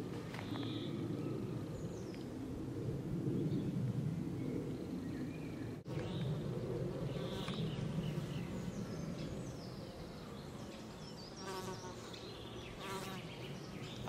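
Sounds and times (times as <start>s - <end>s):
bird chirps and trills: 3.4s - 14.0s
insects buzzing: 5.9s - 8.5s, 10.2s - 14.0s.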